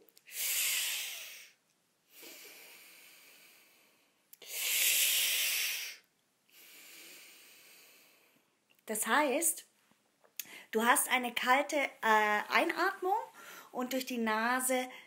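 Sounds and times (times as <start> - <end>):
woman hissing breath through teeth: 0.2 - 8.2.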